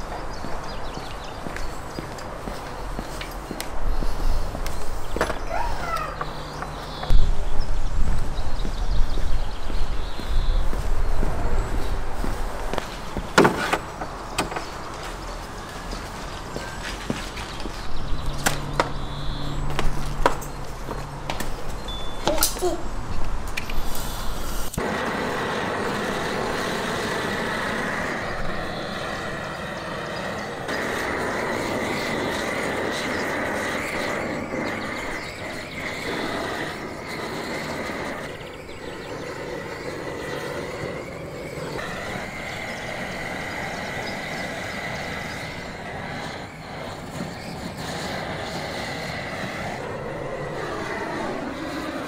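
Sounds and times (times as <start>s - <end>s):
gas torch burning: 0.0s - 52.0s.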